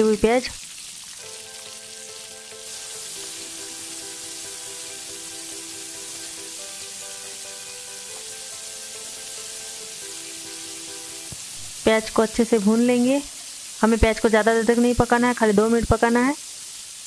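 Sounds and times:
onions sizzling in hot oil: 0.0s - 17.0s
soft background music: 1.2s - 11.4s.

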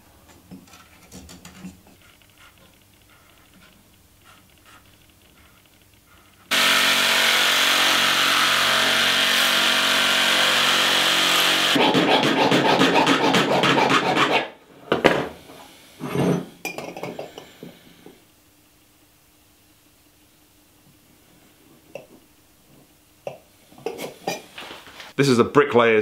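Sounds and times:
light metal knocks and scrapes: 0.3s - 2.8s
power tool running on metal: 6.5s - 11.9s
file rasping on metal: 6.5s - 14.6s.

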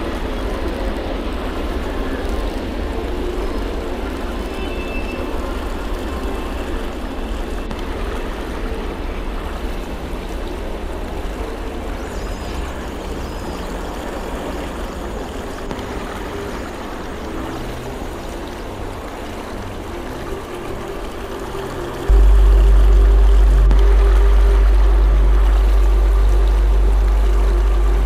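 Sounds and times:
dense noise with low rumble: 0.0s - 28.0s.

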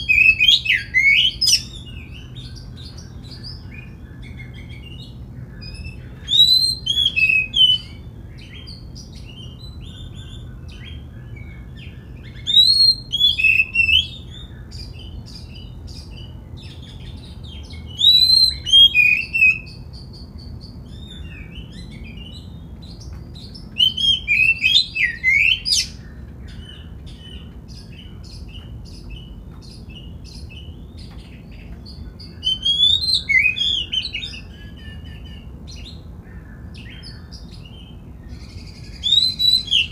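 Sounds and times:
bird singing whistled phrases: 0.0s - 2.6s, 3.2s - 20.2s, 23.5s - 28.1s, 32.2s - 36.0s, 38.4s - 39.9s
soft bird chirps: 0.0s - 39.9s.

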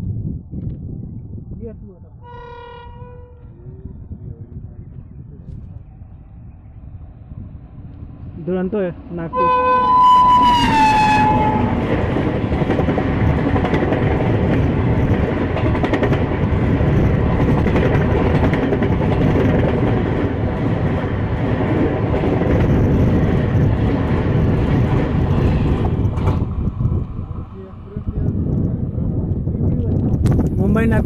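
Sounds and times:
train wheels rumbling on rails: 7.4s - 31.0s.

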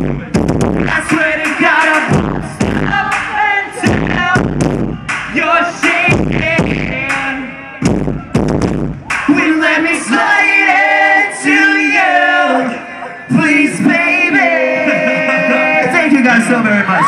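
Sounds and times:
heavy beat hits: 0.0s - 9.6s
live band music: 0.0s - 10.3s.

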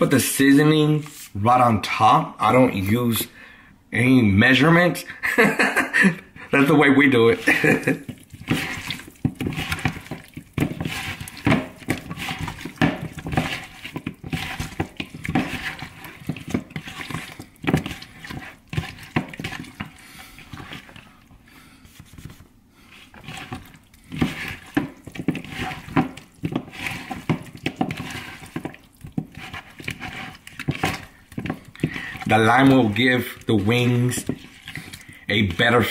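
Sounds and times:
wet squelching and slapping: 7.2s - 21.3s, 23.1s - 35.9s.

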